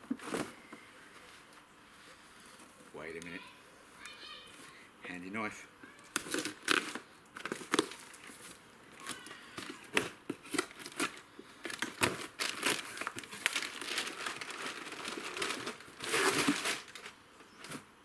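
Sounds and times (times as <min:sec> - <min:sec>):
cardboard box tearing: 0:09.9 - 0:17.1.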